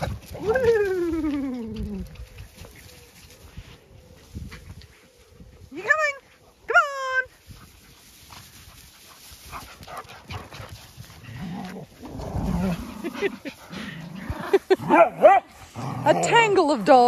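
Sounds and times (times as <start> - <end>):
dogs growling: 9.9 - 16.6.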